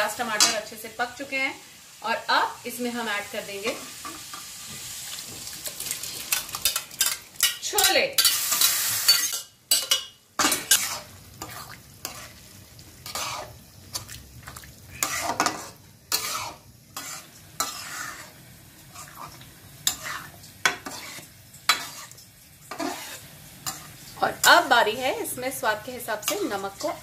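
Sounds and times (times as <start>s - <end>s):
low sizzle of frying: 0.0s - 27.0s
metal spatula scraping a pan: 6.6s - 12.4s, 13.0s - 13.6s, 14.9s - 24.7s.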